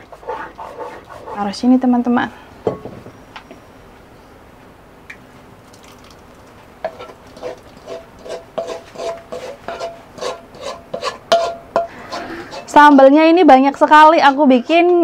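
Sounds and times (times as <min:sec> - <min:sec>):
spatula scraping a frying pan: 0:00.0 - 0:01.8, 0:06.8 - 0:13.1, 0:13.9 - 0:14.8.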